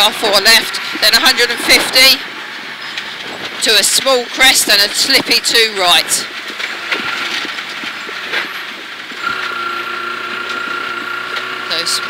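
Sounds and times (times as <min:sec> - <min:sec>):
car engine: 0:00.0 - 0:12.0
gravel ticking against car: 0:02.4 - 0:11.8.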